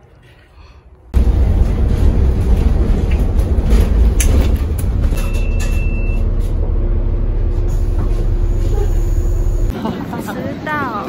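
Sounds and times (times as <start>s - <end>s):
bus engine rumble: 1.0s - 11.0s
bus body rattling clicks: 1.9s - 6.6s.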